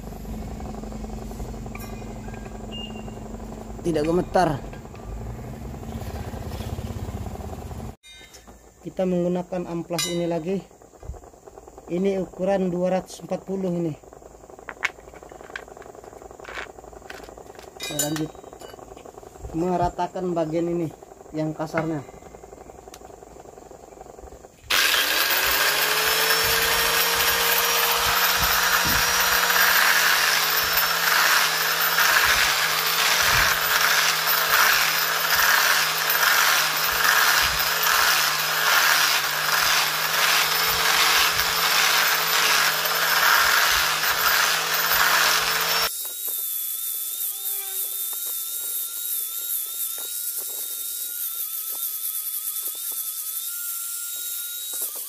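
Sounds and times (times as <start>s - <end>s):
angle grinder sanding metal: 24.7s - 55.0s.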